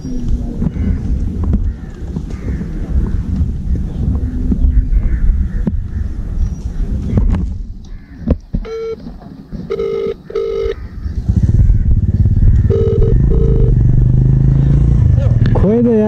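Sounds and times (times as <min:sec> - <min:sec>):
phone call tone beeps: 0:08.6 - 0:09.0, 0:09.7 - 0:10.8, 0:12.6 - 0:13.8
motorcycle engine running: 0:10.4 - 0:16.0.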